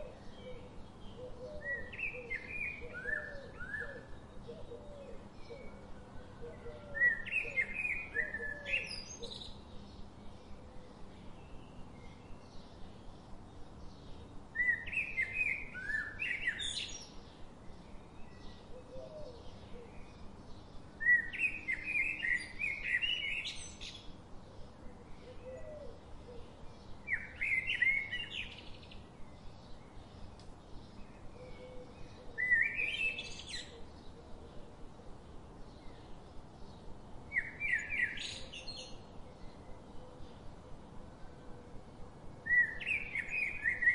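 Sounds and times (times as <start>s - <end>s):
songbird chirping: 0.0s - 43.9s.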